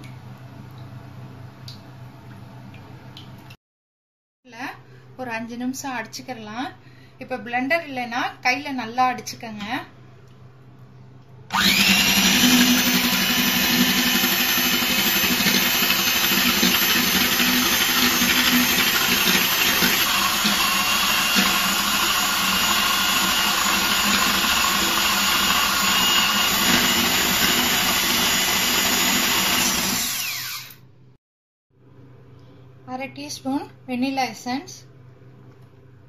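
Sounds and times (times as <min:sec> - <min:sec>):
electric hand mixer whisking: 0:11.5 - 0:30.8.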